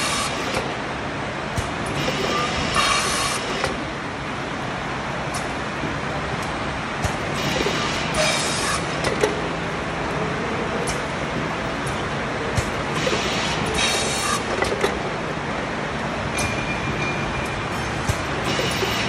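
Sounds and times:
machine indexing clicks: 1.6 - 3.8, 6.4 - 9.4, 11.8 - 15.0, 17.5 - 19.0
printing machine clatter: 1.7 - 3.8, 7.0 - 9.4, 11.9 - 15.1, 17.5 - 19.0
pneumatic air hiss: 2.0 - 3.6, 7.7 - 8.9, 13.0 - 14.5.

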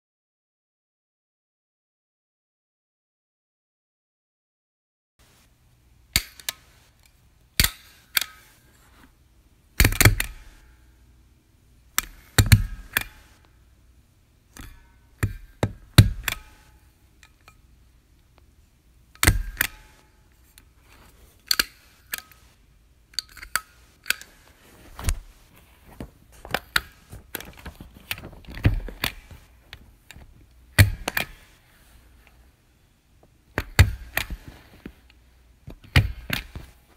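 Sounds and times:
desk stapler clacking: 9.8 - 10.6, 12.0 - 13.3, 14.6 - 16.6, 19.2 - 20.0, 30.8 - 31.5, 33.6 - 34.5, 35.7 - 36.7.

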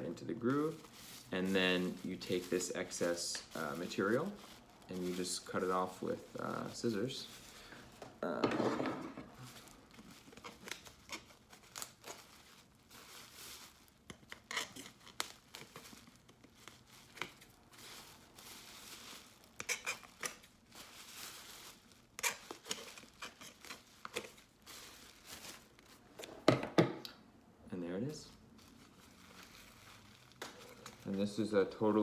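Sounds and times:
plastic bag crinkling: 0.0 - 8.4, 9.1 - 26.3, 28.3 - 32.0
scissors snipping plastic bag: 21.6 - 24.5.

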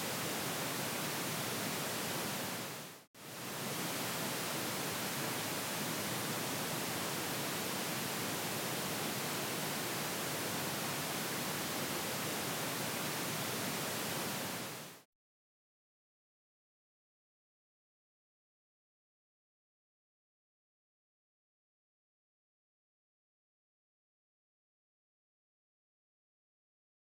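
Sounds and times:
pink noise hiss: 0.0 - 15.0.

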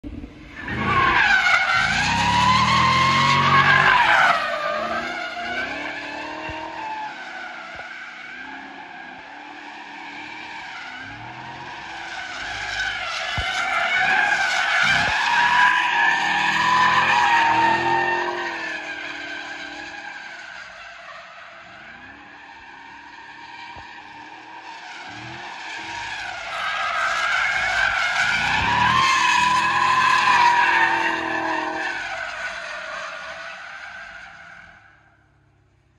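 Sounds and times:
car engine revving hard: 1.8 - 4.0, 4.6 - 6.8, 16.1 - 19.8, 27.5 - 32.1.

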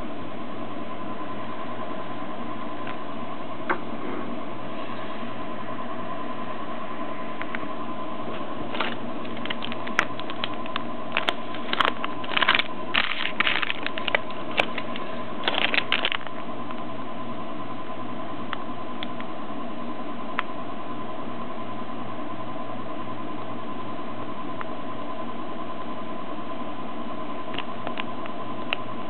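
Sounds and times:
plastic bag crinkling: 8.7 - 16.4.

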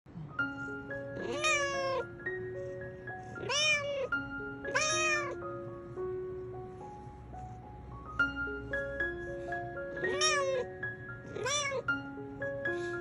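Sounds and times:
soft background music: 0.1 - 13.0
cat meowing: 1.2 - 2.2, 3.3 - 5.4, 10.0 - 12.1.

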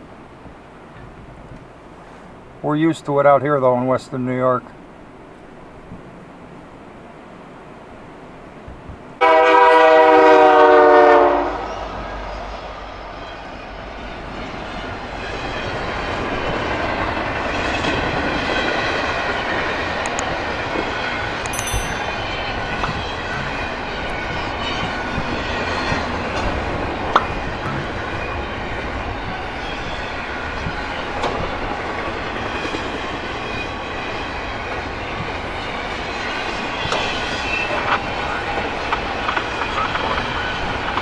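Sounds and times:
freight train passing: 4.6 - 41.0
sharp clank: 21.5 - 22.4.

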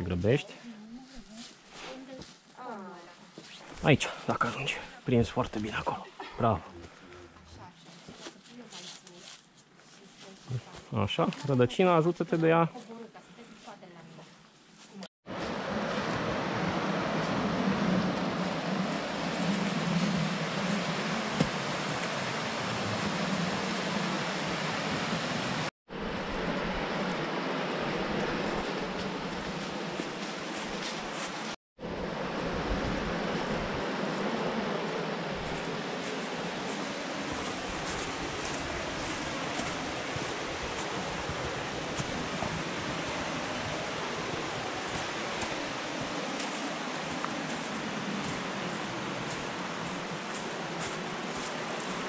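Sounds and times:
dry leaves crackling underfoot: 0.6 - 3.6, 7.8 - 11.0, 28.4 - 31.6, 35.4 - 52.0
river rushing over rocks: 35.4 - 52.0.

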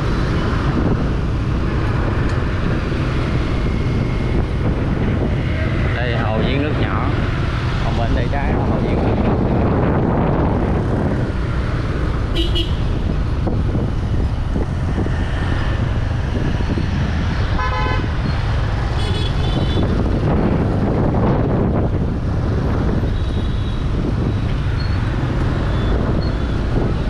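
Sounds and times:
road traffic noise: 0.0 - 27.0
vehicle horn: 12.3 - 12.9, 17.6 - 18.1, 19.0 - 19.9.

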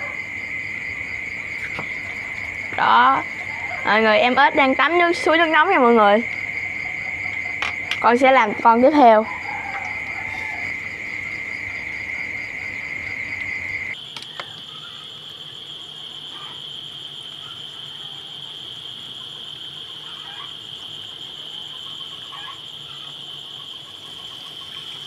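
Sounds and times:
crickets chirping: 0.0 - 25.0
higher-pitched cricket trill: 0.0 - 25.0.

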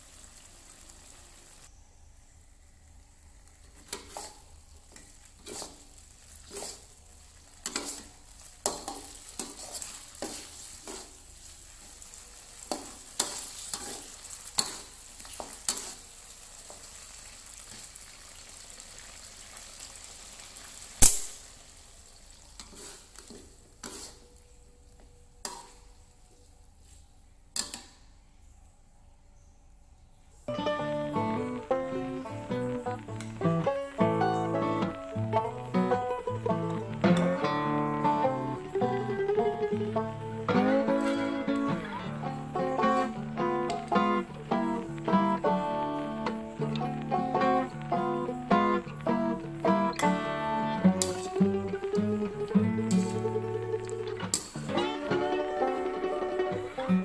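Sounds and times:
light steady sizzle: 0.0 - 57.0
metal spatula scraping a wok: 3.8 - 4.5, 5.4 - 7.0, 7.6 - 11.3, 12.6 - 16.1, 22.6 - 24.4, 25.4 - 25.8, 40.9 - 41.5, 52.9 - 53.3.

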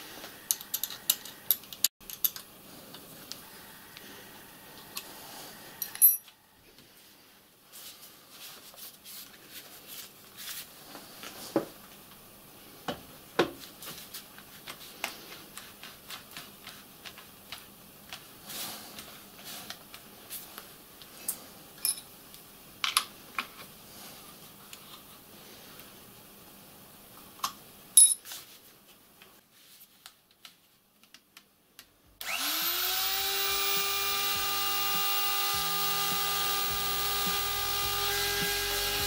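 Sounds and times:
metal tools clinking and knocking: 0.5 - 2.5, 5.8 - 6.3, 21.8 - 22.1, 28.0 - 28.2.

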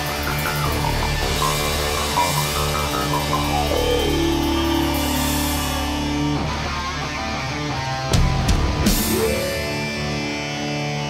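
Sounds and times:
steady low bass: 0.0 - 10.3
sustained guitar notes: 0.0 - 11.0
tone sliding down in pitch: 0.4 - 7.2, 9.0 - 10.3.

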